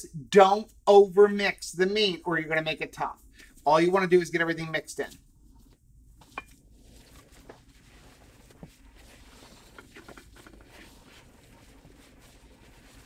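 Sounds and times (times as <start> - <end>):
squishing of kneaded meat: 2.9 - 13.0.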